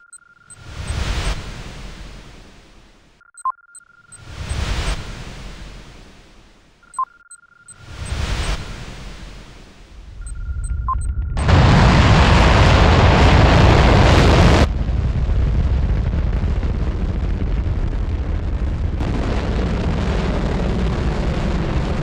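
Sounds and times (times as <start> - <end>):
rocket engine roar: 11.0 - 22.0.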